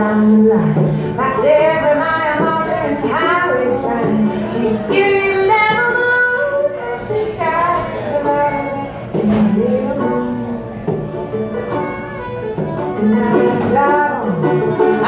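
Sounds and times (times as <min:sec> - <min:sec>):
banjo picking: 0:00.0 - 0:15.0
bowed fiddle melody: 0:00.0 - 0:15.0.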